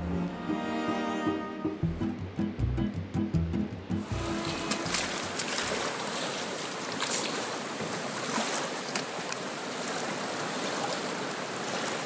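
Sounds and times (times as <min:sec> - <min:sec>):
fast river rushing: 0:04.0 - 0:12.0.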